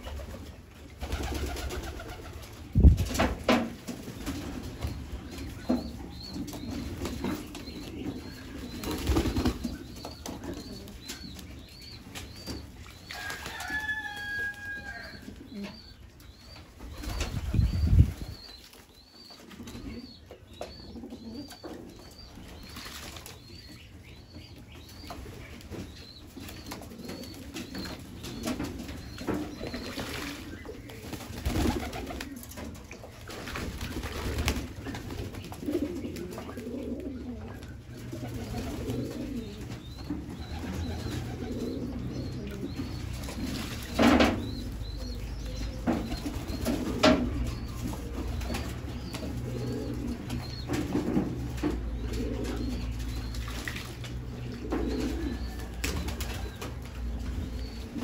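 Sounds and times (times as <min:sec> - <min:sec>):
pigeons cooing: 0:14.5 - 0:18.5, 0:19.5 - 0:22.8, 0:26.4 - 0:32.8, 0:33.4 - 0:58.0
wing flapping: 0:29.4 - 0:32.4, 0:33.2 - 0:36.0.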